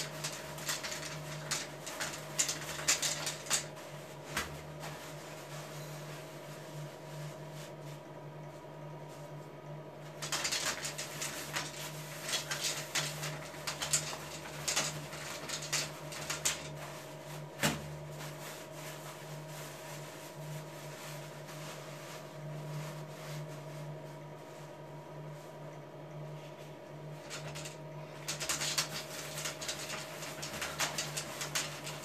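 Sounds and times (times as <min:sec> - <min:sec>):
small clicks and rustles: 0:00.0 - 0:05.8, 0:10.0 - 0:19.0, 0:26.6 - 0:32.0
low room hum: 0:00.0 - 0:32.0.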